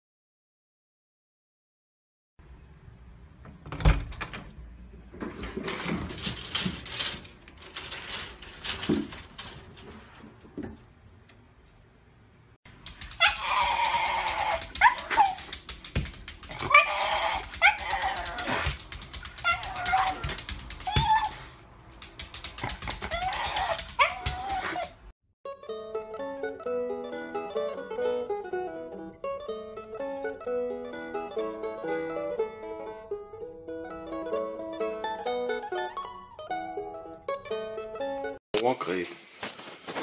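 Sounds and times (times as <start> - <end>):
knocks and rattles: 5.1 - 11.0, 12.7 - 21.2, 21.9 - 24.5
dog whining: 13.1 - 15.6, 16.4 - 21.6, 22.8 - 25.1.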